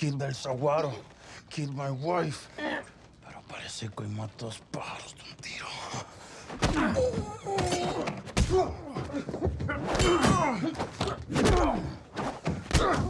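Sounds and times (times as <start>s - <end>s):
men grunting and straining: 6.5s - 13.0s.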